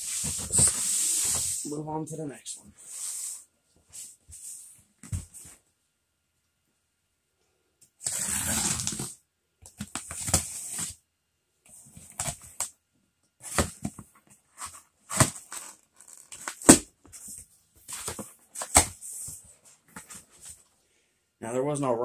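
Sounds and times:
cardboard tearing: 8.0 - 9.2
packing tape ripping: 8.0 - 9.2.

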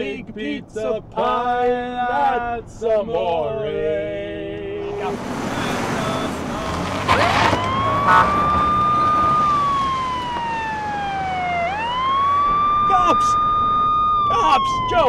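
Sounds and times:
vehicle and road noise: 0.0 - 15.0
police siren wailing: 4.9 - 15.0.

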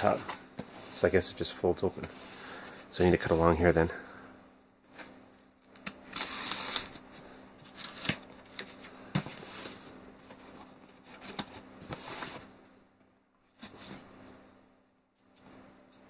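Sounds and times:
blade slitting packing tape: 5.8 - 7.0.

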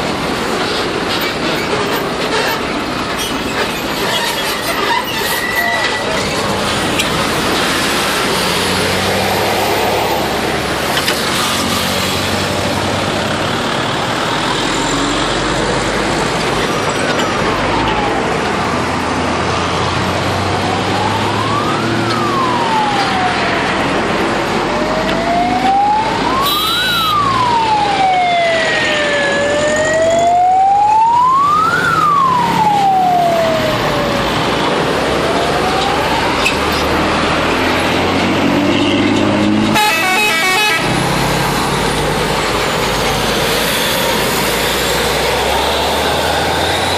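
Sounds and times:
vehicles passing close by: 0.0 - 46.9
wailing siren-like bus horn: 19.4 - 41.6
short high horn blast: 39.8 - 40.9.

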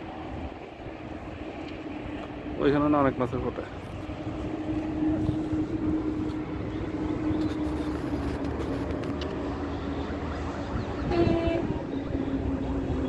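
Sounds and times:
low rumble of traffic: 0.0 - 13.0
vehicle engine drone: 0.0 - 13.0.

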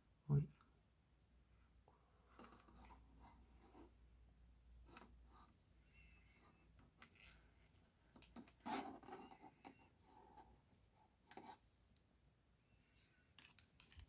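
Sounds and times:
yarn and cable rubbing: 4.7 - 12.0.

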